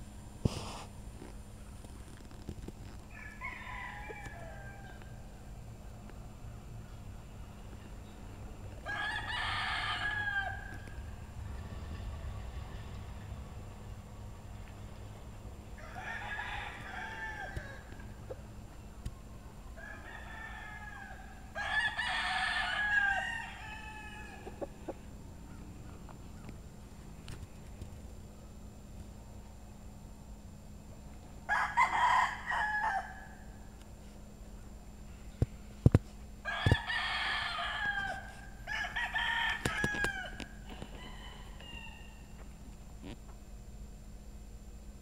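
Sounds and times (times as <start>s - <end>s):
rooster crowing: 3.1s - 5.5s, 8.8s - 11.1s, 15.7s - 18.4s, 19.7s - 26.0s, 31.4s - 33.6s, 36.4s - 42.4s.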